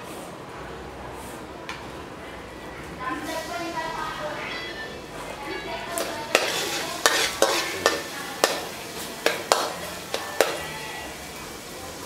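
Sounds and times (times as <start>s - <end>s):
light sizzle: 3.0s - 12.0s
spatula clinking on wok: 5.9s - 10.7s.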